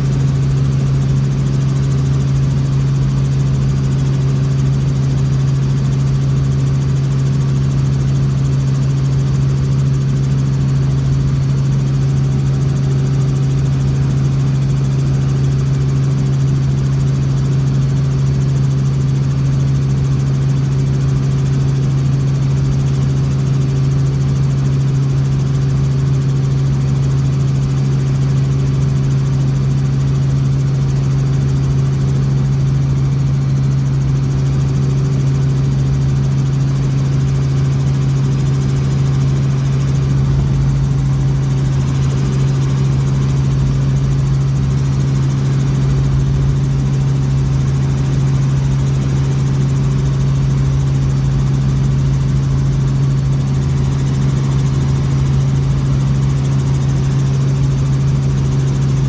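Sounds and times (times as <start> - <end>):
helicopter engine and rotor drone: 0.0 - 59.0.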